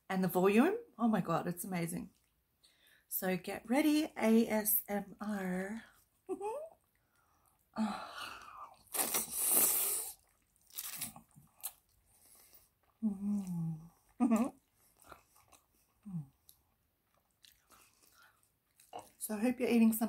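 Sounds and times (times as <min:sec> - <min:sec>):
person slurping noodles: 0:08.4 - 0:11.8
chewing with wet mouth clicks: 0:10.2 - 0:13.5, 0:14.6 - 0:19.2.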